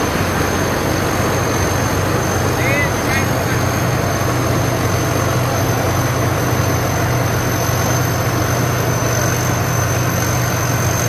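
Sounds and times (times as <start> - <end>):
diesel engine running loud: 0.0 - 11.0
high machine whine: 0.0 - 11.0.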